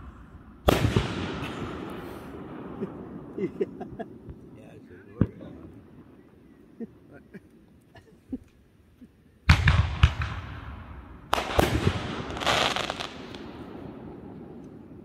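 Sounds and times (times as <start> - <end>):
firework bangs: 0.0 - 4.5, 9.5 - 14.6
firework crackling: 9.5 - 13.8.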